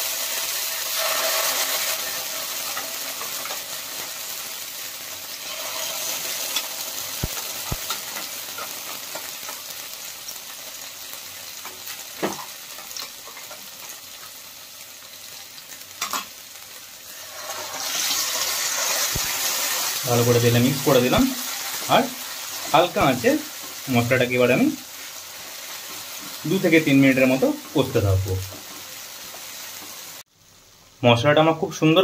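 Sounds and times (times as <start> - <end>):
spice paste sizzling in oil: 0.0 - 32.0.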